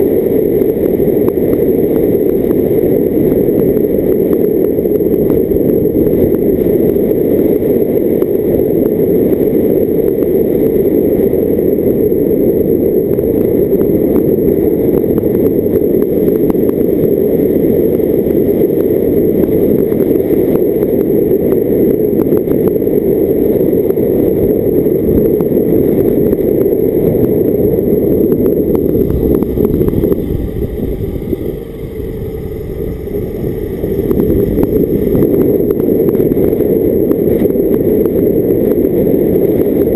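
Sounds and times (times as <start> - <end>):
wind noise on microphone: 0.0 - 39.9
car engine rumble: 25.6 - 39.6.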